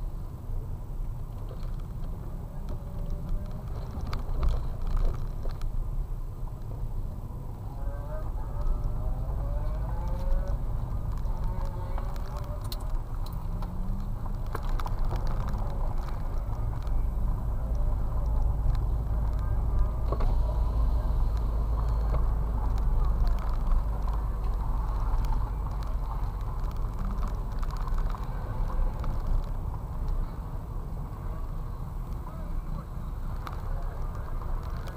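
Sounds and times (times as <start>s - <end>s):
car engine and tyres rumbling: 0.0s - 34.9s.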